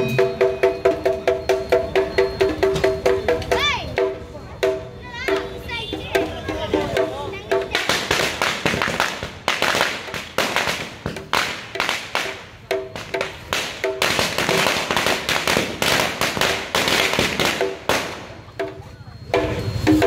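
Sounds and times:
bonfire crackling and popping: 7.8 - 12.4, 13.0 - 18.2.

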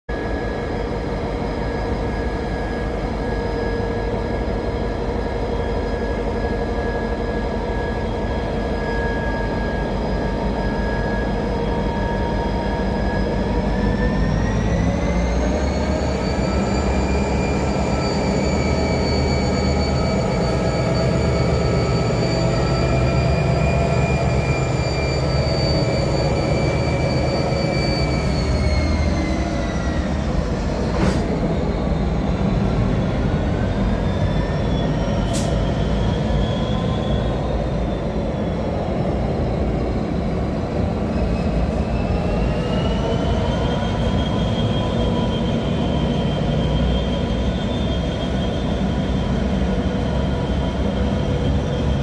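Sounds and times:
diesel locomotive engine drone: 0.1 - 52.0.

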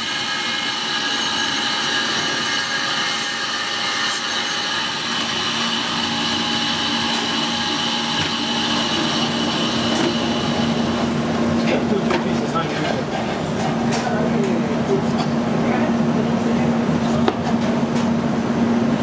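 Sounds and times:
band saw cutting bone: 0.0 - 12.3.

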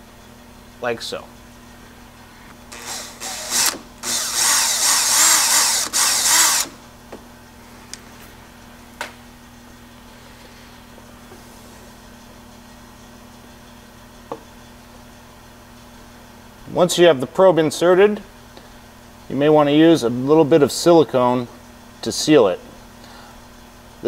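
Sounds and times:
cordless drill boring through hose: 2.7 - 6.8.

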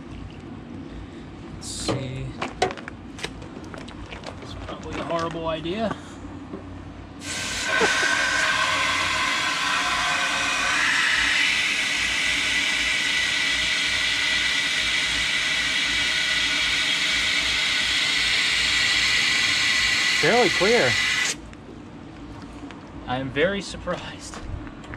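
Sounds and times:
hose water rushing with whistle: 7.2 - 21.4.

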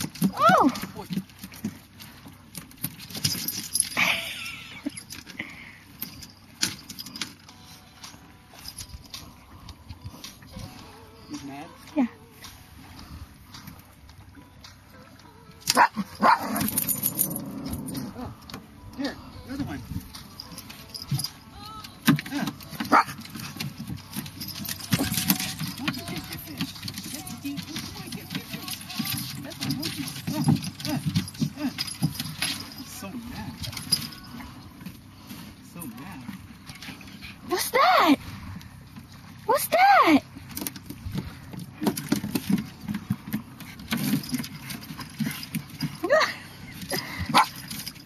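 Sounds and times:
small dogs yapping: 15.7 - 17.1, 47.0 - 47.6
dogs fussing: 15.7 - 21.5, 22.2 - 35.7, 40.2 - 48.0.

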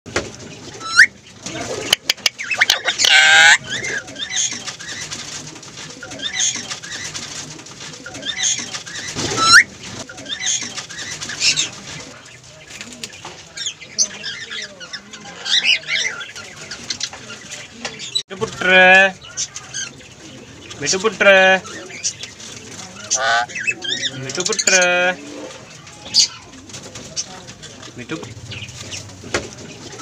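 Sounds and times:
parakeet squawking and chirping: 1.9 - 4.5, 8.2 - 9.7, 23.1 - 23.8.

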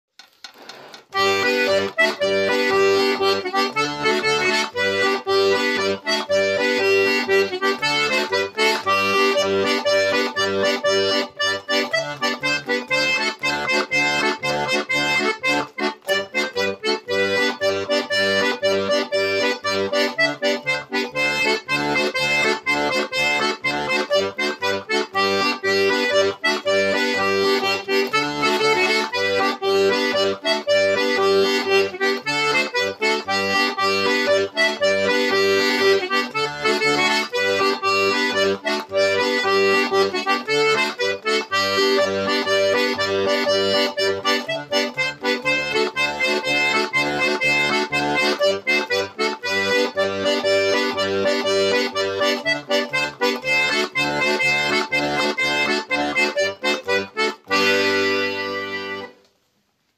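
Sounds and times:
button accordion playing lively dance: 1.0 - 59.2.

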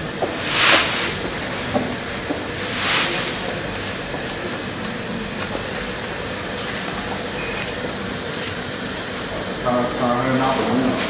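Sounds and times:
rice husk pouring: 0.0 - 5.1
boiler machinery hiss and rumble: 0.0 - 11.0.

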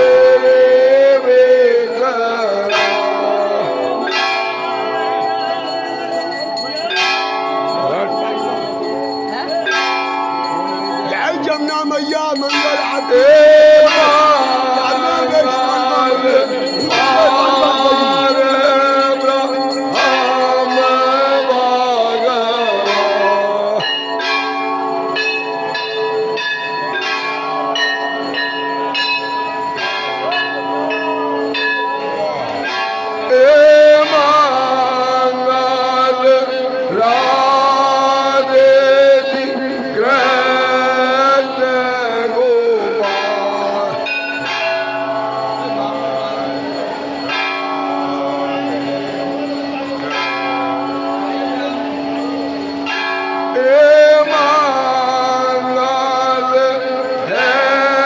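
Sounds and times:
people singing a hymn: 0.0 - 4.2, 13.0 - 23.9, 33.3 - 44.2, 53.6 - 58.0
temple bells ringing: 0.0 - 58.0.

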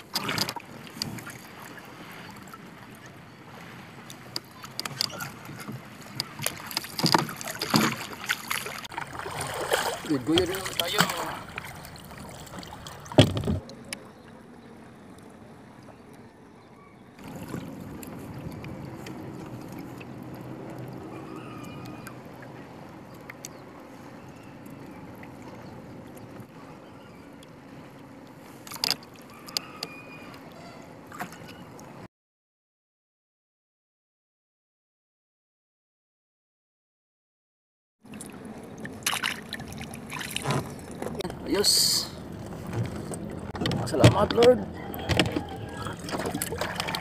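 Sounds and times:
paddle splashing in water: 0.0 - 14.0, 17.2 - 29.6, 30.4 - 31.6, 38.1 - 47.0
water lapping against hull: 0.0 - 32.1, 38.0 - 47.0.

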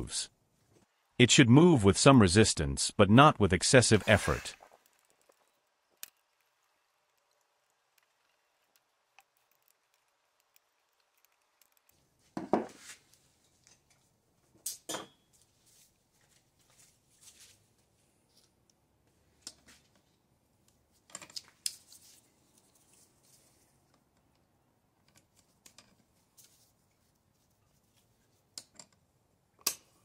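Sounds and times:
metal tools knocking on wooden bench: 12.4 - 12.7.

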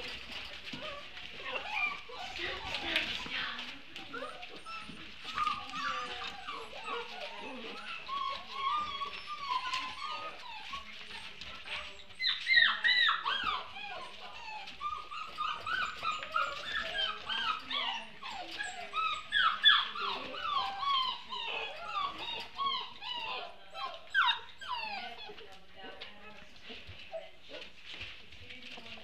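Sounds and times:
puppies whining and yipping: 0.0 - 25.6.

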